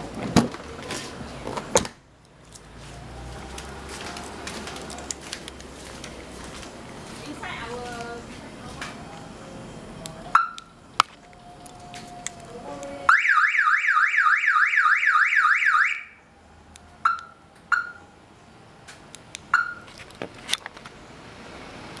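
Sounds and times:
car alarm chirps: 10.3 - 10.8, 13.1 - 16.3, 17.0 - 18.2, 19.5 - 19.9
car alarm siren sweeping: 10.3 - 10.8, 13.1 - 16.3, 17.0 - 18.2, 19.5 - 19.8.

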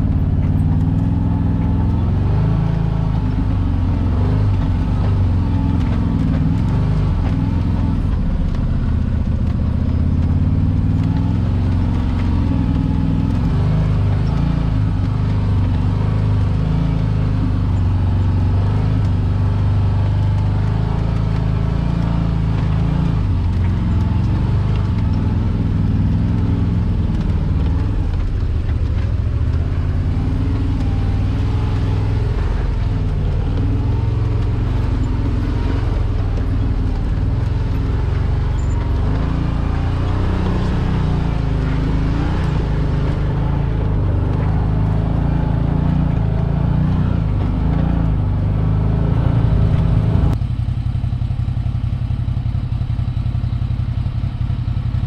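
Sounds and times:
utility vehicle engine running: 0.0 - 55.0.

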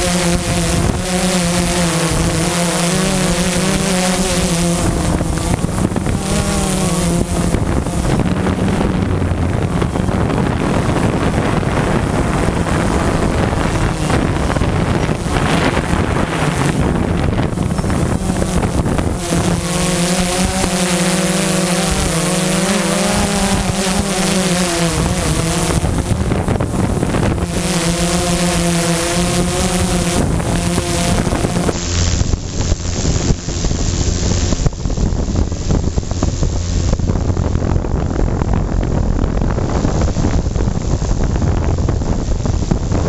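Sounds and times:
drone propellers buzzing: 0.0 - 43.0
wind on microphone: 0.0 - 43.0.

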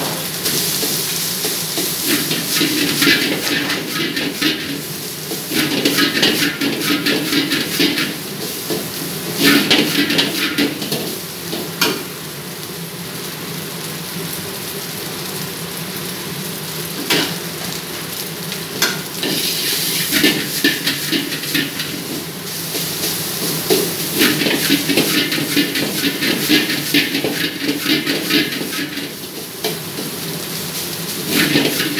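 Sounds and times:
metal ladle scraping a wok: 0.0 - 11.0, 18.8 - 31.9
fried rice sizzling: 0.0 - 31.9.

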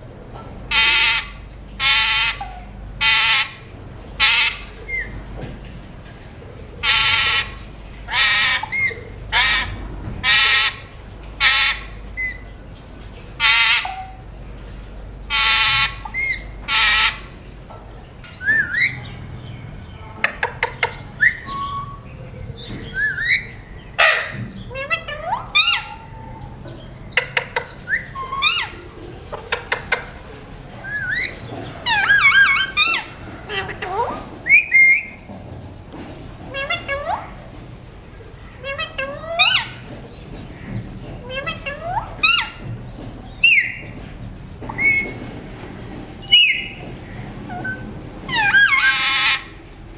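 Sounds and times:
parakeets squawking and chirping: 0.7 - 5.2, 6.8 - 12.4, 13.4 - 14.2, 15.2 - 17.4, 18.2 - 30.2, 30.8 - 35.2, 36.5 - 37.4, 38.4 - 44.0, 44.6 - 45.2, 46.2 - 49.6.

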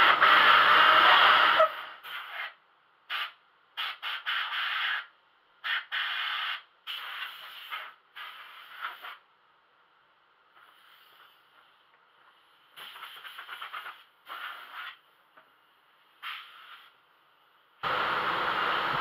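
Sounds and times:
air blow gun hissing bursts: 0.0 - 2.5, 5.6 - 9.2, 12.7 - 15.0, 16.2 - 17.0, 17.8 - 19.0.

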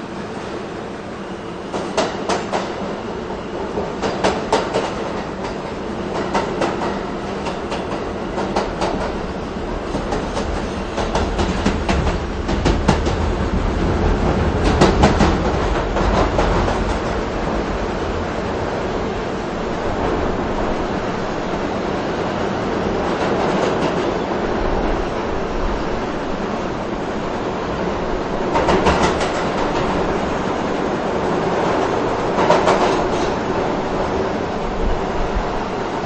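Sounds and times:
train rumble: 0.0 - 36.0
subway wheels clacking over joints: 1.3 - 25.2, 25.8 - 36.0.

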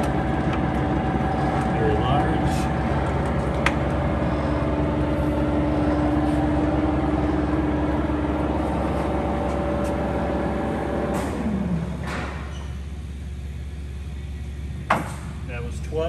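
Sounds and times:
grinder machine hum: 0.0 - 12.2.

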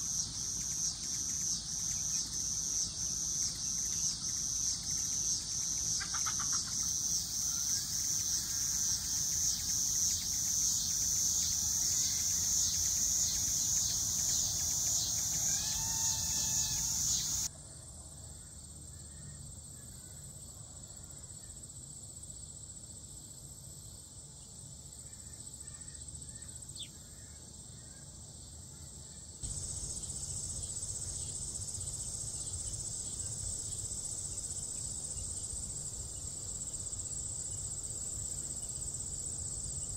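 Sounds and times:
insect chorus: 0.0 - 39.9
bird calls: 3.5 - 7.9, 12.2 - 17.5.

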